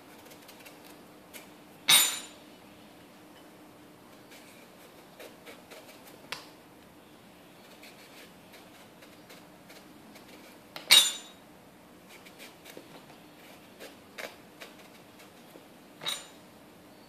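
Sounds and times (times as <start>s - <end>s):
knife scraping squash peel: 4.2s - 6.2s, 7.7s - 10.6s, 13.6s - 15.5s.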